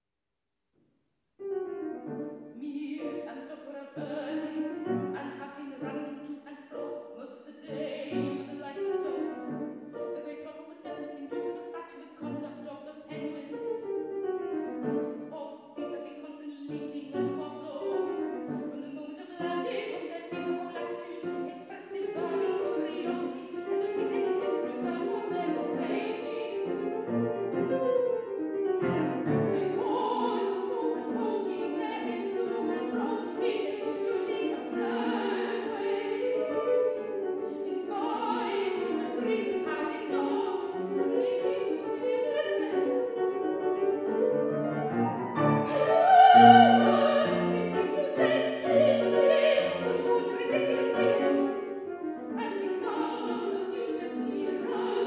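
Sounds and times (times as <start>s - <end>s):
piano accompaniment: 1.4s - 6.2s, 16.7s - 55.0s
soprano singing: 1.4s - 55.0s.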